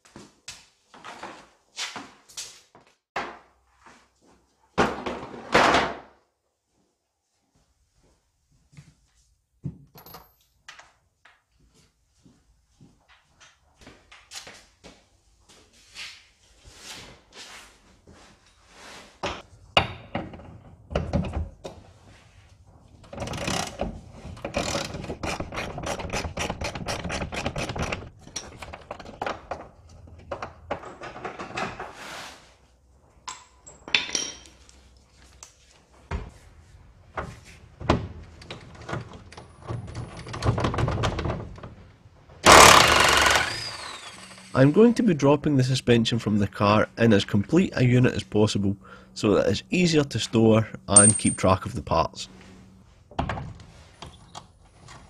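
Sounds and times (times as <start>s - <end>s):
footsteps on concrete floor: 0.0s - 3.0s, 6.6s - 9.8s, 11.2s - 18.5s
workshop knocks and clanks: 3.2s - 3.6s, 4.8s - 6.2s, 19.1s - 22.0s, 23.0s - 32.0s, 37.1s - 41.8s, 53.1s - 53.7s
impact wrench burst: 42.4s - 44.6s.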